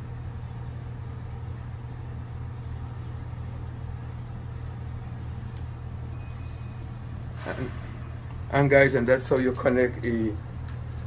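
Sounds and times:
machinery humming: 0:00.0 - 0:11.0
faint clicks from handling wires: 0:05.5 - 0:05.7.

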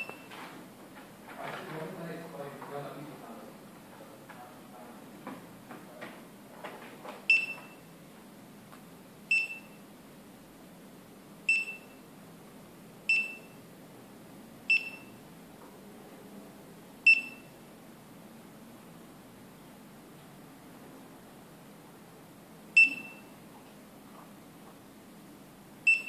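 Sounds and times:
short high phone beeps: 0:00.0 - 0:00.3, 0:07.3 - 0:07.9, 0:11.5 - 0:12.0, 0:22.8 - 0:23.3.

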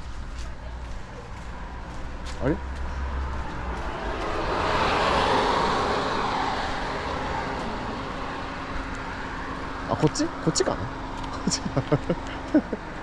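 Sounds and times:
car driving past: 0:01.2 - 0:11.4.

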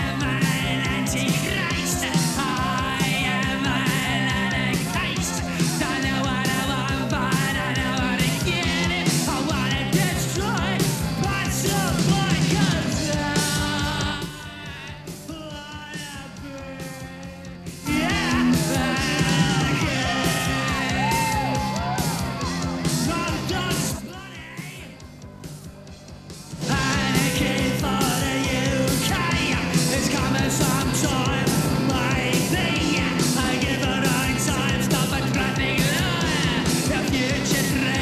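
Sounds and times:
punk rock song: 0:00.0 - 0:38.0
man shouting vocals: 0:17.8 - 0:22.2.

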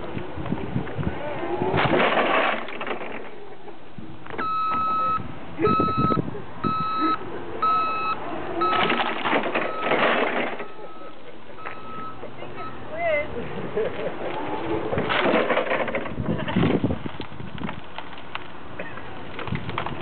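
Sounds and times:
forklift engine running: 0:03.9 - 0:16.4
forklift backup alarm beeping: 0:04.4 - 0:12.9.

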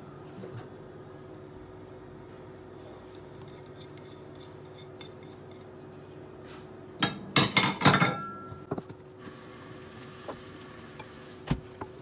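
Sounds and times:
kitchenware clinking on glass bowl: 0:07.1 - 0:08.5.

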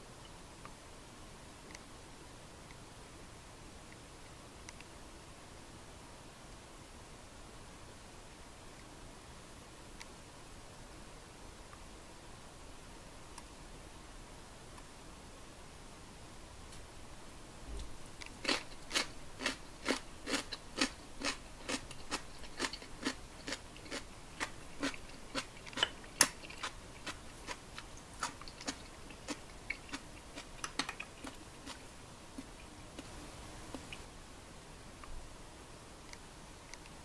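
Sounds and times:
crunchy chewing: 0:18.2 - 0:34.0.

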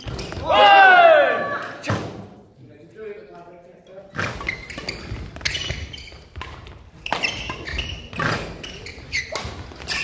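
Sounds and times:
shoes thudding and squeaking on court: 0:00.0 - 0:00.6, 0:04.1 - 0:10.0
rackets hitting shuttlecock: 0:06.4 - 0:10.0.

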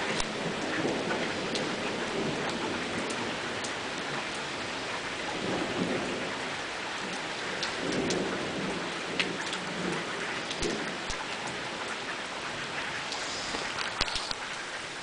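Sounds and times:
thunder rumbling: 0:00.0 - 0:12.0
heavy rain: 0:00.0 - 0:15.0
raindrops ticking close by: 0:00.0 - 0:15.0.

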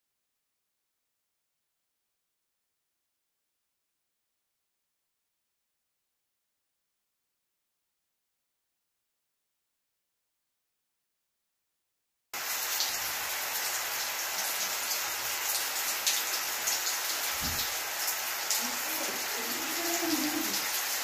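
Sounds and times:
shower spraying water: 0:12.4 - 0:21.0.

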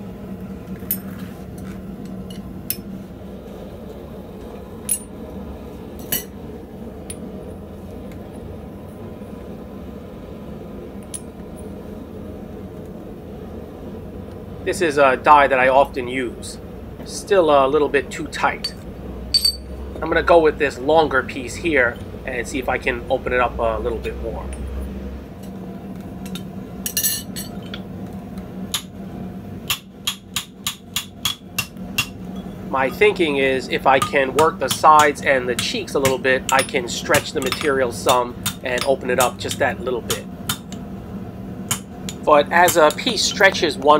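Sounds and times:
steady hum: 0:00.0 - 0:43.9
steel pieces clinking: 0:18.6 - 0:19.7
hammer striking steel: 0:19.4 - 0:19.7, 0:29.7 - 0:32.2, 0:34.0 - 0:40.8, 0:41.7 - 0:43.1.

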